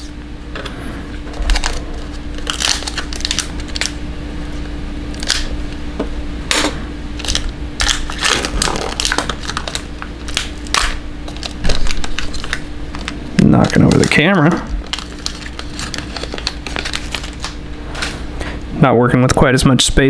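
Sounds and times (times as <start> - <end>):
cardboard and wrappers crinkling: 1.3 - 4.0, 7.2 - 18.2.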